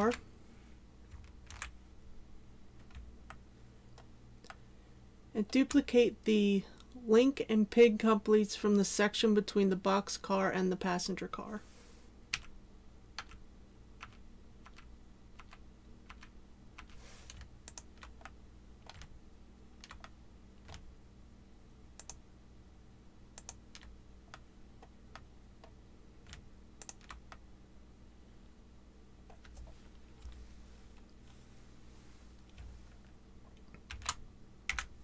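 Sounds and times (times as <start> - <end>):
faint steady hum: 0.0 - 35.0
keyboard and mouse clicks: 14.0 - 19.1, 19.8 - 20.8, 22.0 - 22.2, 23.4 - 27.4, 29.3 - 30.4.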